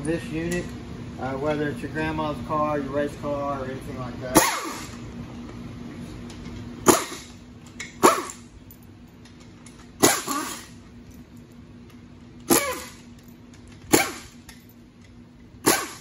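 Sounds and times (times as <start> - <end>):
air impact wrench bursts: 4.3 - 5.0, 6.8 - 8.5, 10.0 - 10.8, 12.4 - 13.1, 13.9 - 14.5, 15.6 - 16.0.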